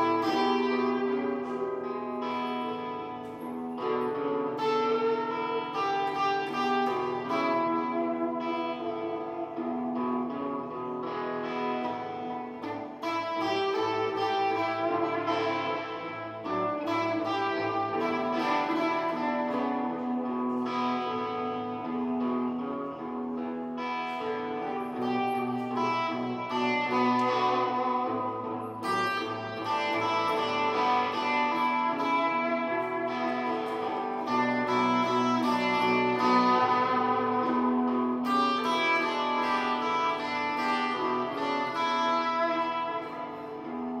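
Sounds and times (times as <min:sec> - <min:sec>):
blues guitar: 0:00.0 - 0:44.0.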